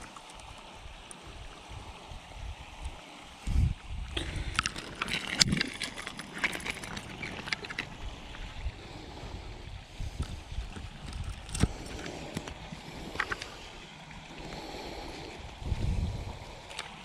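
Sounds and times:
low water hiss: 0.0 - 17.0
light splashing and clicking: 4.2 - 8.5, 10.1 - 13.7, 16.6 - 17.0.

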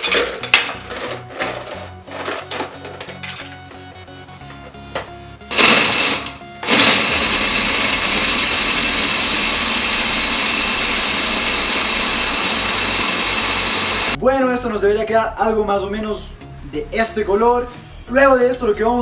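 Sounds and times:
blender crushing ice: 0.0 - 3.0, 5.5 - 14.2.

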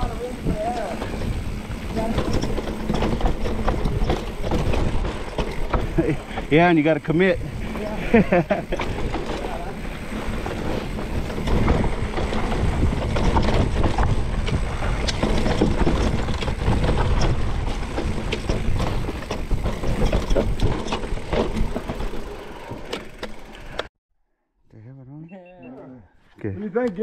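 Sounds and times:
bike chain clattering: 0.0 - 23.8
bike tyres rolling over dirt: 0.0 - 23.9
wind on microphone: 9.9 - 20.7.

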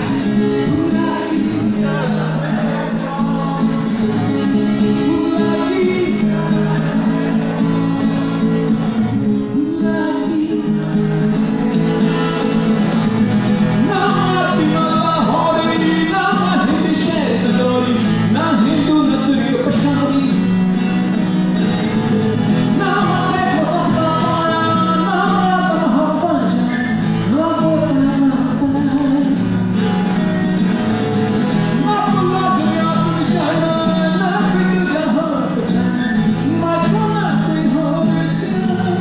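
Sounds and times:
man singing into microphone: 0.0 - 8.4, 9.2 - 11.6, 13.6 - 20.6, 22.5 - 29.6, 31.6 - 39.0
acoustic guitar: 0.0 - 39.0.

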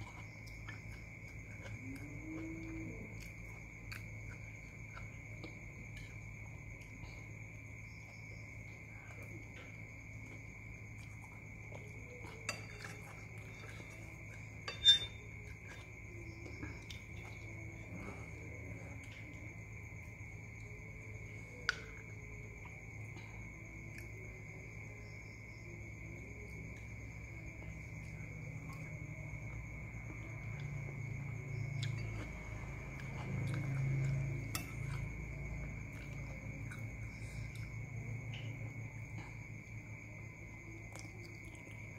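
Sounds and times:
cricket chirping: 0.0 - 41.9
cutlery clinking against a bowl: 12.3 - 13.9, 14.6 - 15.2
spoon clinking on ceramic bowl: 14.6 - 15.2.

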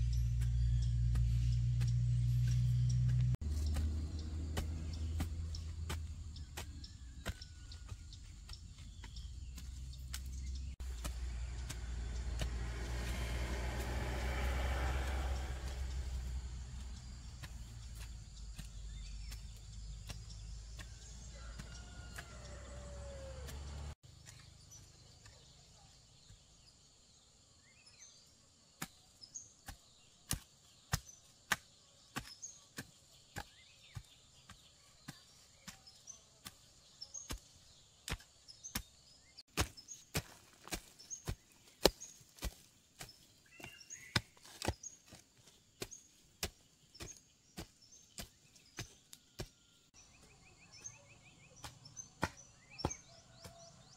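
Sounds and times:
hand tool chopping: 0.1 - 24.5, 29.6 - 49.5, 50.2 - 53.9.

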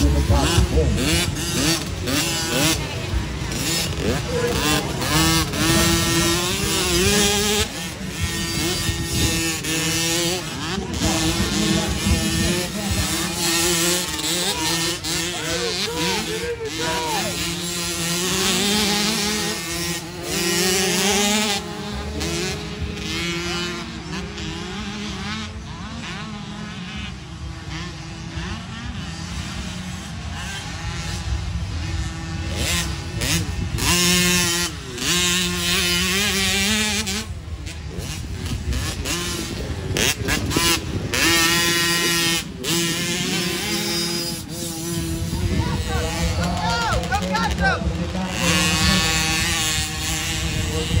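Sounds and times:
dirt bike engines revving: 0.0 - 51.0.

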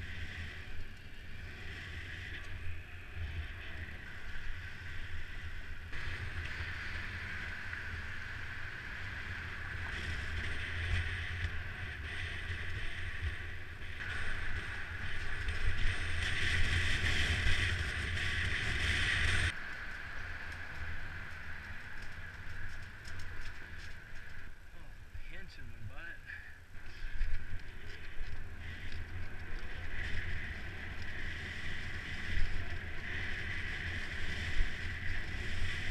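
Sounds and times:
bike riding hiss: 0.0 - 24.9, 26.7 - 35.9
wind rumbling on microphone: 0.0 - 35.9.

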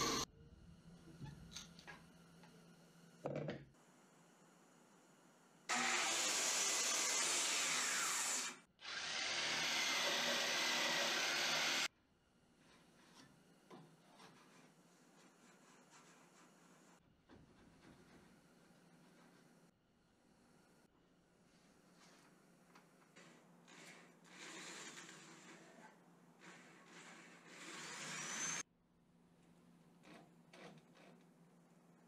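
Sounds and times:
power tool cutting wood: 0.0 - 0.3, 5.7 - 11.9, 26.4 - 28.6.

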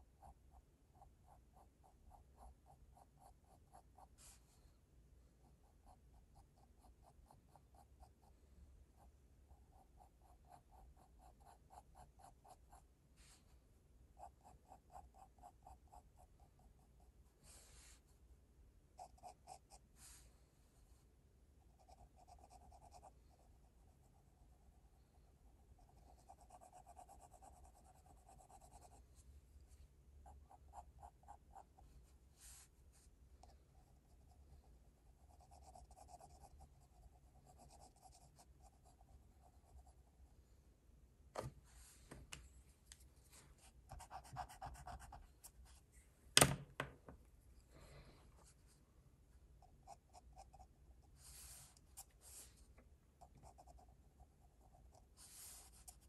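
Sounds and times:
pencil scratching on paper: 0.2 - 4.4, 5.5 - 8.3, 9.0 - 12.8, 14.2 - 17.8, 19.0 - 19.8, 21.7 - 29.2, 30.2 - 32.7, 33.4 - 40.2, 43.3 - 45.8, 49.6 - 52.6, 53.2 - 56.0.

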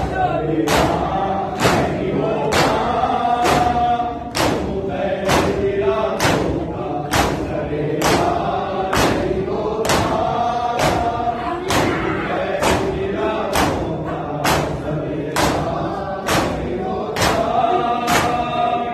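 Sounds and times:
crowd of men chanting: 0.0 - 18.9
hands slapping chests: 3.4 - 5.6, 16.2 - 17.5.

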